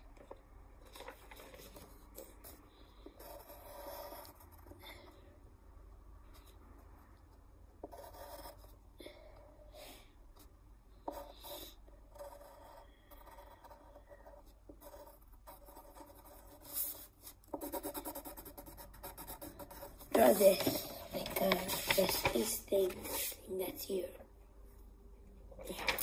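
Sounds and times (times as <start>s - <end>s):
pencil scratching on paper: 1.0s - 5.2s, 7.8s - 8.8s, 11.1s - 23.8s.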